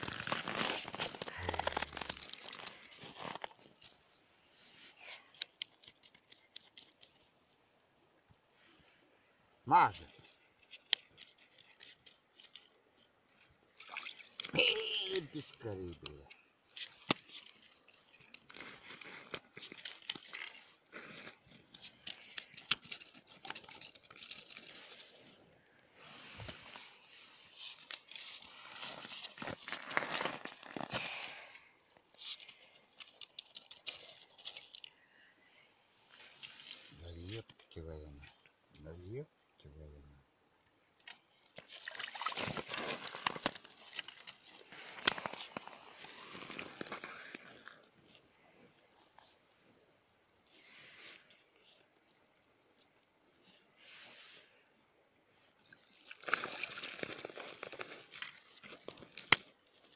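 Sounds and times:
ice and snow crunching: 0.0 - 6.1, 16.8 - 25.4, 26.0 - 34.9, 41.8 - 47.8, 56.0 - 59.9
fish slapping on slushy ice: 41.6 - 47.1, 56.0 - 59.6.

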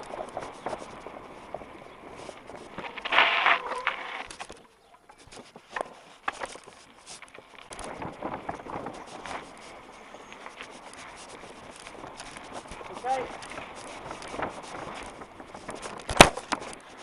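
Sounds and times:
mountain bike clattering: 0.0 - 17.0
bike frame knocks and rattles: 11.6 - 17.0.

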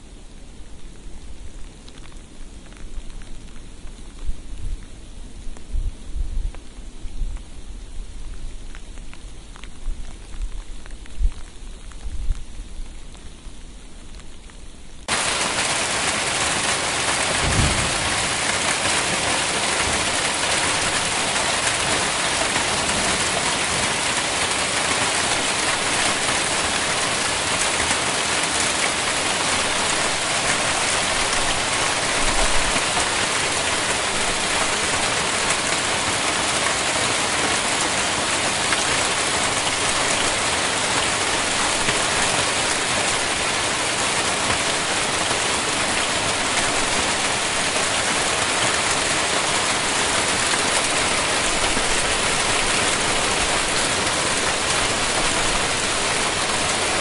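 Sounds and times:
hail falling: 15.0 - 57.0.

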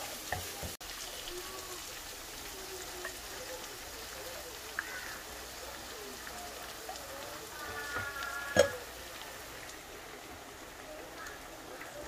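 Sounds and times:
sauce sizzling in a wok: 0.0 - 12.0.

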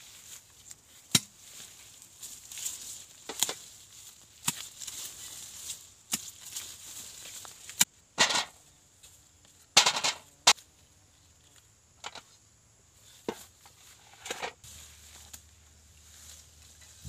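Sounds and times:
digging tool striking soil: 1.0 - 1.4, 4.4 - 4.9, 6.1 - 6.5.

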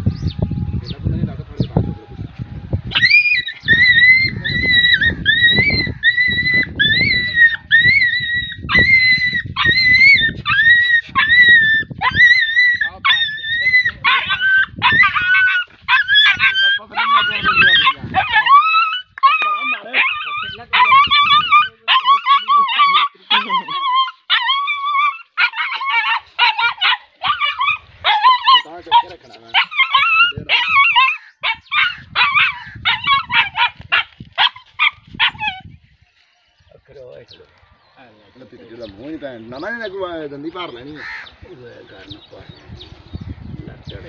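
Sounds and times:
dog yelping in distress: 2.9 - 35.8.

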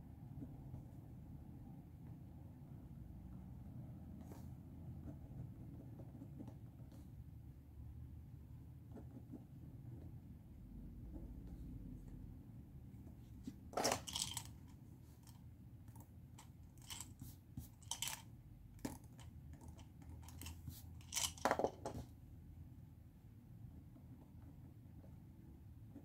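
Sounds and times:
pen and cup clicks: 16.4 - 21.7.

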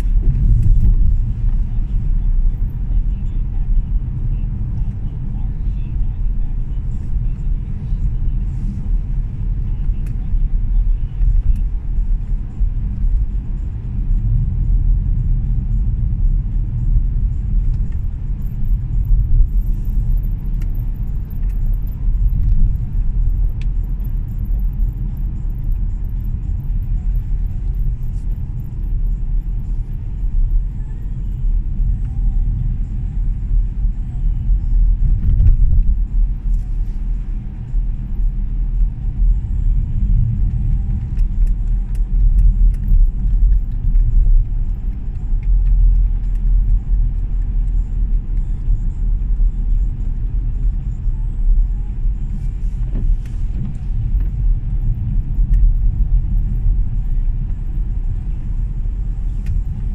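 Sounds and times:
car driving along road: 0.0 - 59.9.

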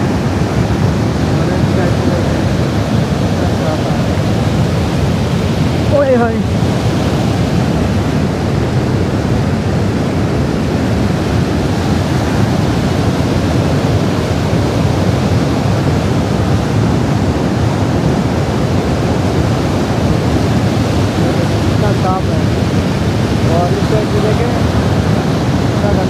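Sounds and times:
stream rushing over boulders: 0.0 - 26.0.

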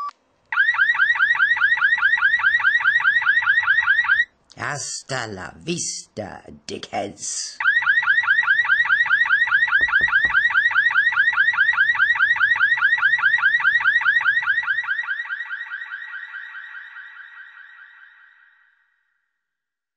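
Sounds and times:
car alarm siren sweeps: 0.5 - 4.3, 7.6 - 19.2
low thuds: 9.7 - 10.6.

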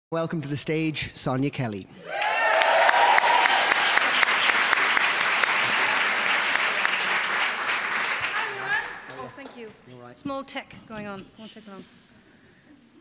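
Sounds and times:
audience applauding: 2.0 - 9.8.

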